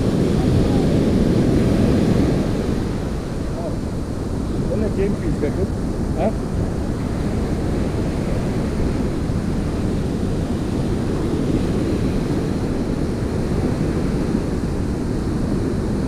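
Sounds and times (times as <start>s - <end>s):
small waves breaking on beach: 0.0s - 16.0s
wind buffeting microphone: 0.0s - 16.0s.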